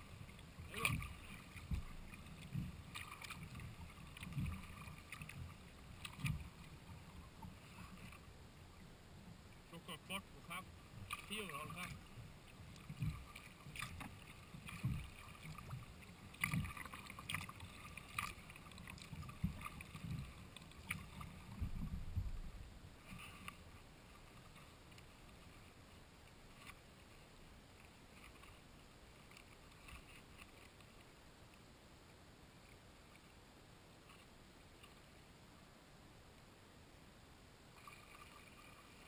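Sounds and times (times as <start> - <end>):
paddle strokes splashing water: 0.0 - 31.2, 37.7 - 39.0
low thuds: 21.6 - 22.6.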